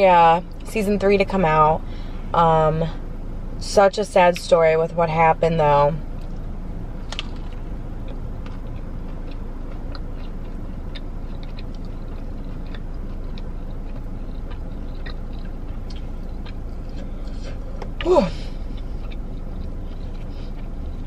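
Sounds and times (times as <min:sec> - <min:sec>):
steady low hum: 0:00.0 - 0:21.0
person chewing food: 0:07.1 - 0:21.0.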